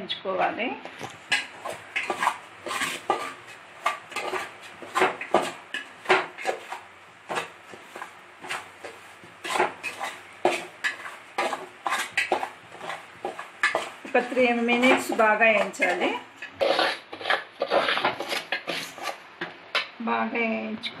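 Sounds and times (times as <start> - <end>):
metal spoon stirring semolina: 1.2 - 19.9.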